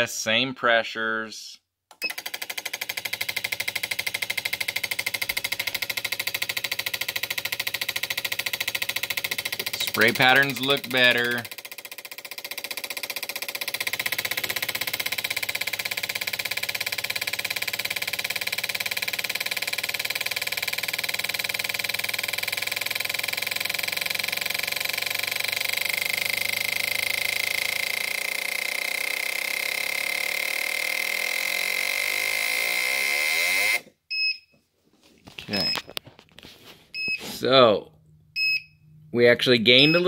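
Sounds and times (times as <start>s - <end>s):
fuel injectors clicking rapidly: 1.9s - 33.0s.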